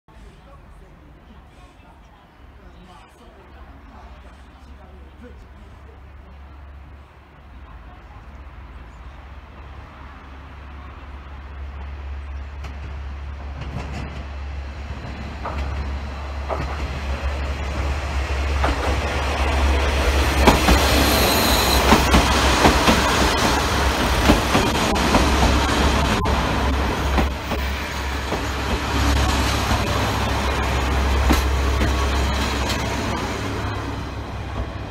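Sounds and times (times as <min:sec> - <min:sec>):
train wheels clicking on rails: 0:11.7 - 0:25.6, 0:27.1 - 0:34.9
diesel engines humming: 0:14.4 - 0:34.9
high squeal: 0:20.8 - 0:22.1.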